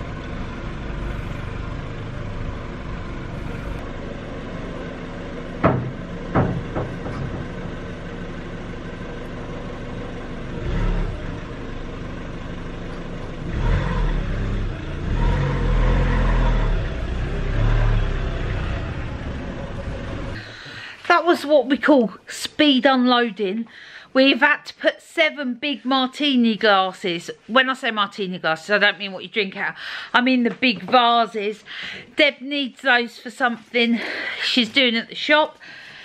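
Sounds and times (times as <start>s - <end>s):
car engine running: 0.0s - 20.7s
sharp knocks: 5.6s - 7.8s.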